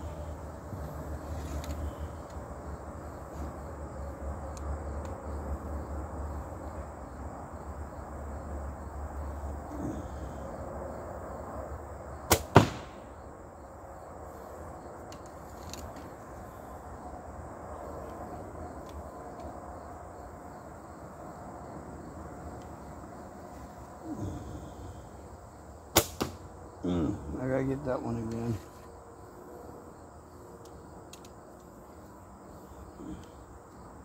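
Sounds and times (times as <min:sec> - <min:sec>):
arrow striking target: 0:12.3 - 0:13.1, 0:25.9 - 0:26.4.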